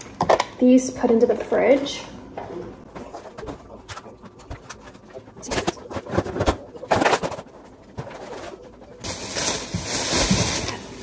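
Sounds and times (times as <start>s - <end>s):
knocks and rustles: 2.8s - 10.6s
plastic bag crinkling: 3.2s - 11.0s.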